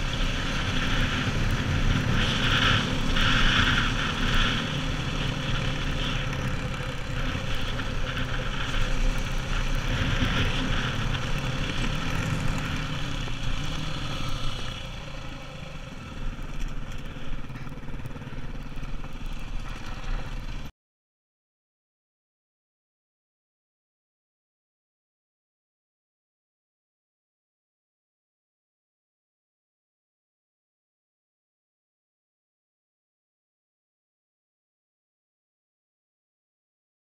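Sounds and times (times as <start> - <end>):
motorcycle engine running: 0.0 - 20.7.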